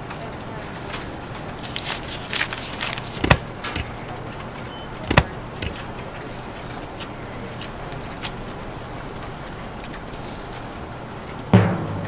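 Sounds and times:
stapler clacking shut: 0:01.6 - 0:03.9, 0:05.0 - 0:05.8.

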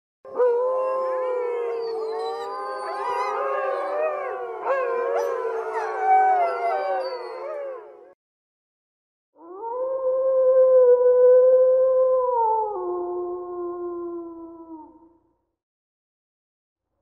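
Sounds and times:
wolves howling: 0:00.3 - 0:08.2
wolf yips: 0:05.2 - 0:07.5.

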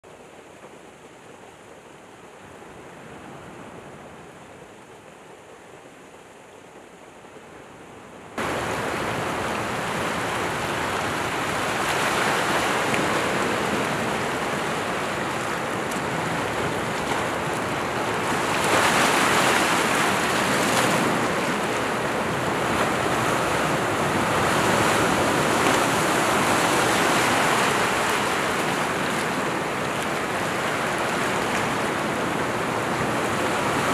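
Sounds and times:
waves breaking on rocks: 0:08.4 - 0:33.9.

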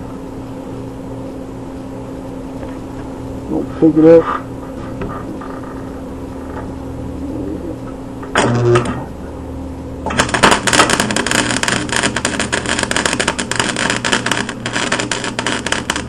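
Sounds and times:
arc welder crackling: 0:07.8 - 0:09.2, 0:10.0 - 0:16.0.

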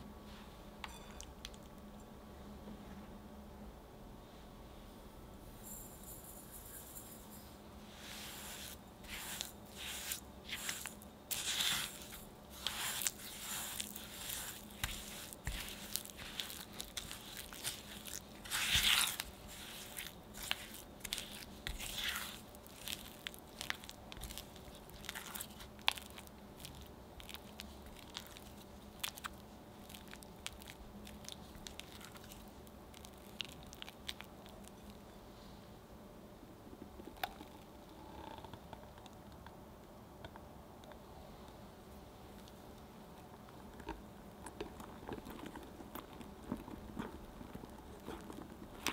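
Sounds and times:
spatula scraping glass bowl: 0:08.0 - 0:25.5
sugar pouring: 0:08.0 - 0:35.0.

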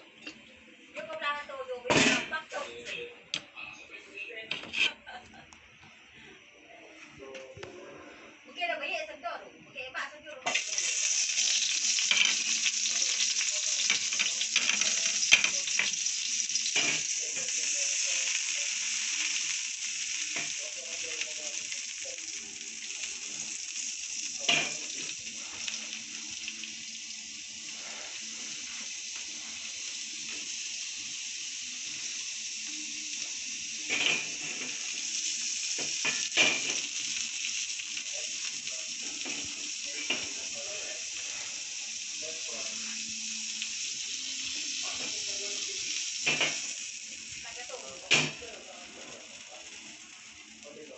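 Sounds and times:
butter sizzling in a frying pan: 0:10.4 - 0:50.9.

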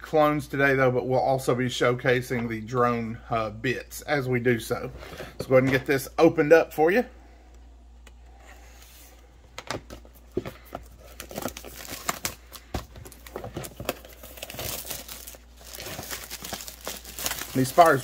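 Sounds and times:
plastic shrink wrap crinkling: 0:10.9 - 0:18.0.

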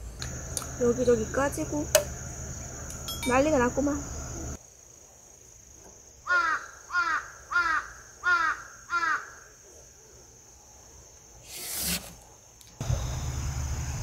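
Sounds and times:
crow cawing: 0:06.3 - 0:09.5.

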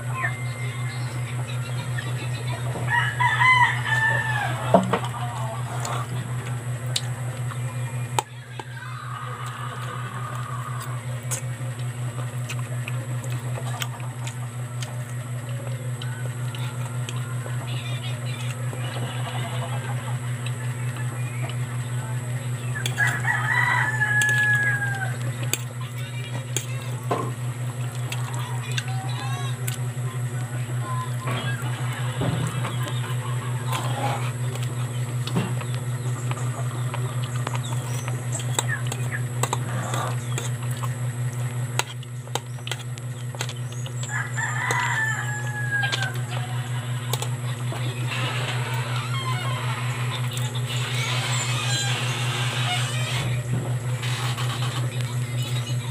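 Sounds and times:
steady low hum: 0:00.0 - 0:55.9
rooster crowing: 0:02.7 - 0:06.1, 0:22.8 - 0:25.5, 0:44.0 - 0:50.2.

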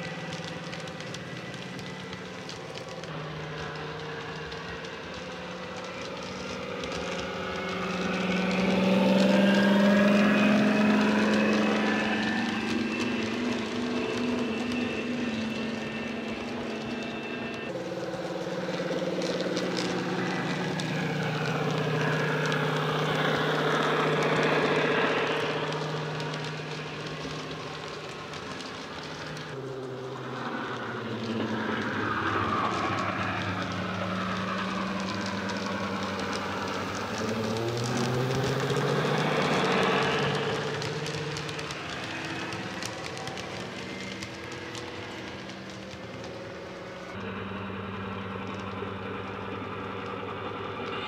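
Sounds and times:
diesel engine sound from speaker: 0:00.0 - 0:51.0.

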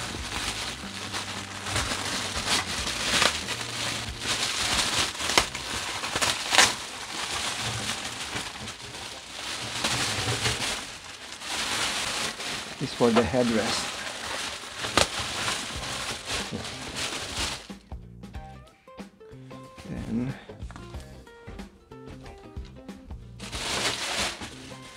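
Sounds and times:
plastic wrapping crinkling: 0:00.0 - 0:17.8, 0:23.4 - 0:24.9.

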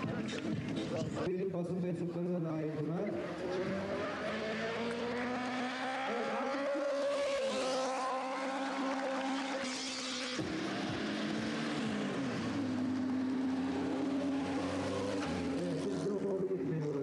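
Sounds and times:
motorcycle engine revving high: 0:03.1 - 0:16.4.

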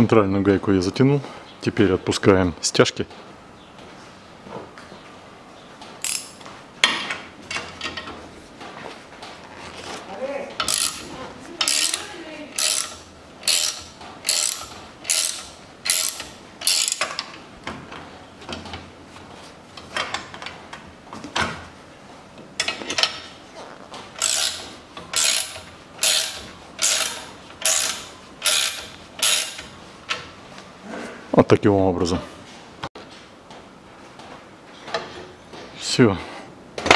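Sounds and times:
ratcheting wrench clicking: 0:06.0 - 0:06.4, 0:10.6 - 0:17.4, 0:24.2 - 0:29.7.

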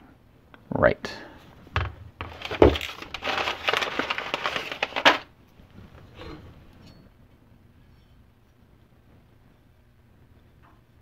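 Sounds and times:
crackling rustle with clicks: 0:02.2 - 0:05.6.

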